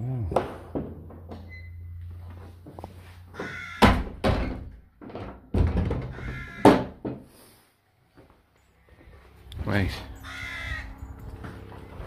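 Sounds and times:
door creaking: 0:00.2 - 0:02.2, 0:03.3 - 0:07.2.

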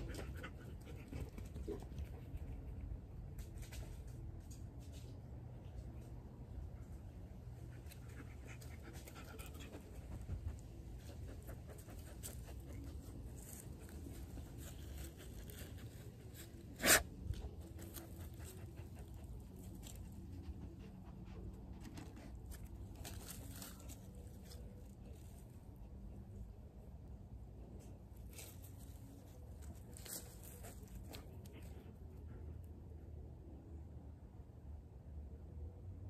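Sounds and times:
dog panting and sniffing: 0:00.0 - 0:02.7, 0:07.6 - 0:25.2.

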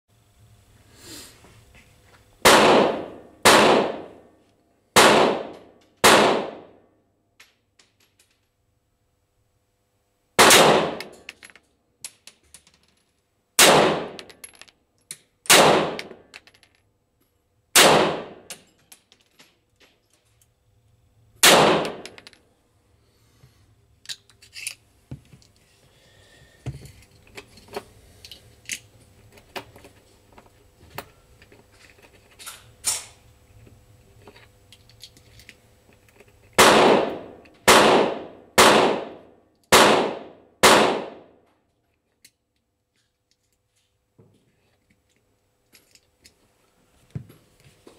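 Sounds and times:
pistol shots echoing: 0:02.4 - 0:04.2, 0:05.0 - 0:06.7, 0:10.4 - 0:11.2, 0:13.6 - 0:14.2, 0:15.5 - 0:16.1, 0:17.8 - 0:18.5, 0:21.4 - 0:22.1, 0:36.6 - 0:41.3.

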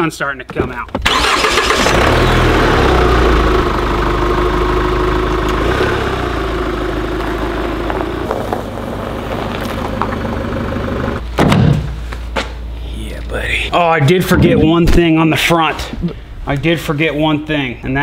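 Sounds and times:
diesel engine running: 0:01.0 - 0:11.2.

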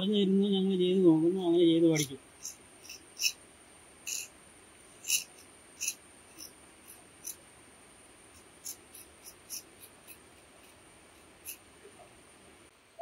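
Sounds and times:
insects droning: 0:00.0 - 0:13.0
knife scraping on sharpening stone: 0:05.0 - 0:06.0, 0:11.4 - 0:11.6.

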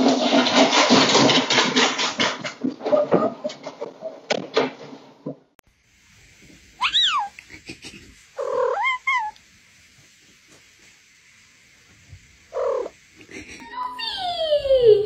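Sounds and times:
cat meowing: 0:06.8 - 0:07.4, 0:08.4 - 0:09.4, 0:12.6 - 0:12.9.

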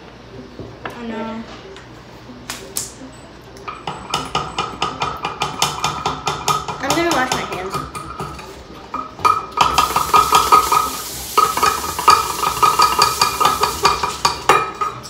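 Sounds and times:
utensil scraping mixing bowl: 0:04.1 - 0:15.0.

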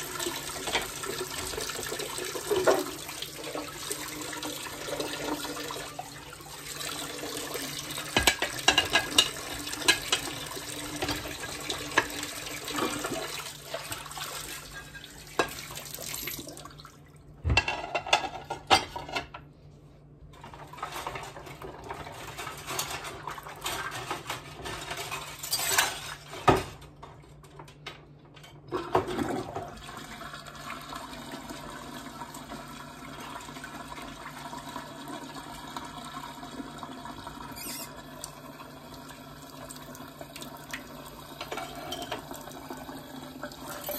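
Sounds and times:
tap water running and splashing: 0:00.0 - 0:17.0, 0:28.8 - 0:43.9
dishes and utensils clinking: 0:08.1 - 0:11.3, 0:17.5 - 0:19.3, 0:22.0 - 0:26.8, 0:41.4 - 0:42.3.

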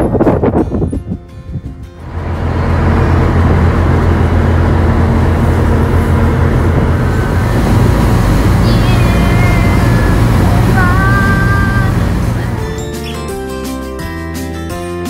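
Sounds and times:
wind: 0:00.0 - 0:13.4
ferry engine drone: 0:01.8 - 0:13.6
churning wake water: 0:02.0 - 0:13.4.

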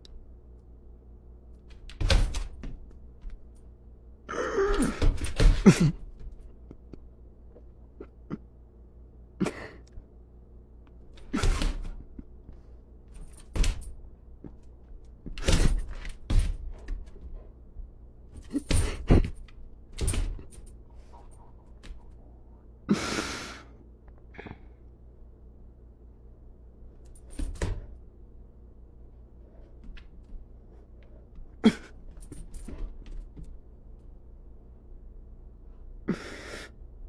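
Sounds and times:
dog paws thumping on floor: 0:01.6 - 0:03.6, 0:13.1 - 0:17.5, 0:27.0 - 0:27.9, 0:31.3 - 0:33.7.

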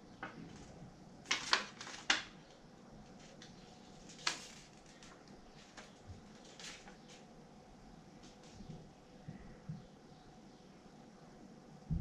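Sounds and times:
handling noise clicks and rustles: 0:00.2 - 0:07.3.

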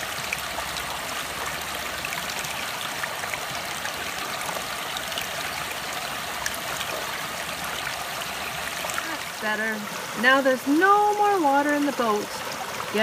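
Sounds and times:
stream running over rocks: 0:00.0 - 0:13.0.

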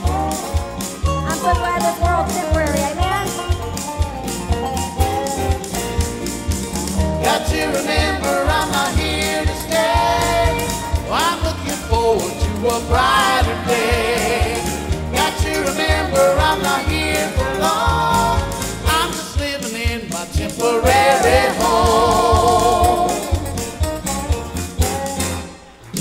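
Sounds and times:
band with drums: 0:00.0 - 0:26.0
male lead singing: 0:07.2 - 0:23.6.

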